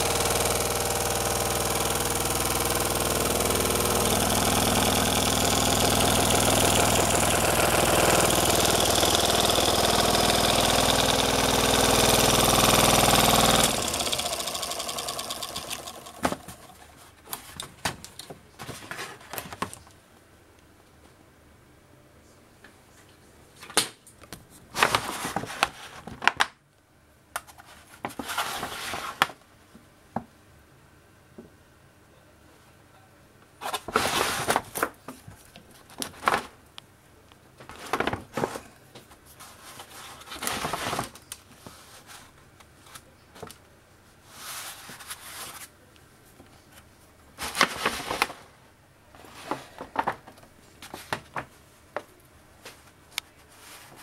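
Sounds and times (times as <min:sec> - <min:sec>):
rustling and scraping handling noises: 0:16.3 - 0:20.0, 0:24.3 - 0:26.3, 0:27.4 - 0:29.4, 0:37.6 - 0:54.0.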